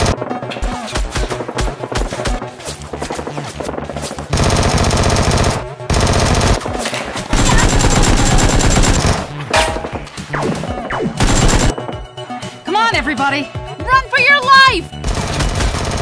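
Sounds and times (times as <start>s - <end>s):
video game automatic gunfire: 4.3s - 6.6s, 7.3s - 9.3s, 11.2s - 11.8s, 15.0s - 16.0s.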